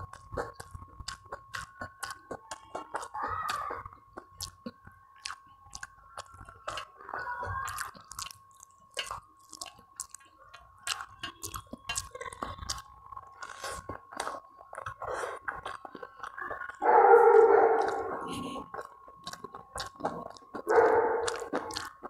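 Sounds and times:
wet chewing and mouth smacks: 0.0s - 22.0s
fingers mixing rice on steel plate: 5.2s - 16.4s.

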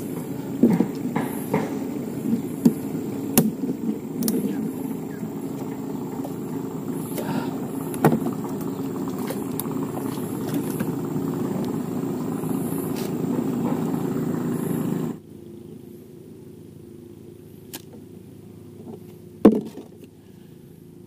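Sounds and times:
engine low drone: 0.0s - 21.0s
sharp knocks and clicks: 0.1s - 1.8s.

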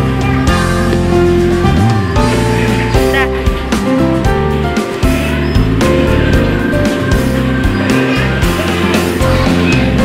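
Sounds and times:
music with held notes and bass: 0.0s - 10.0s.

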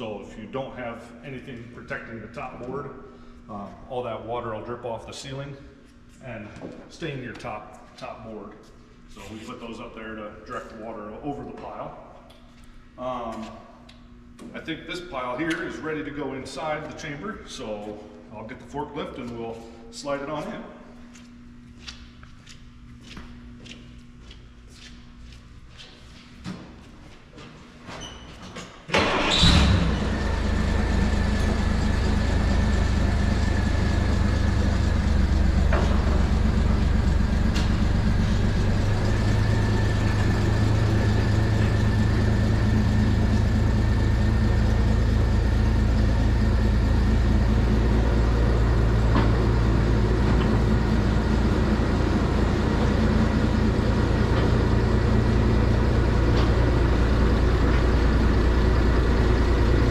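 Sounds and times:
forklift engine running: 28.9s - 59.9s.

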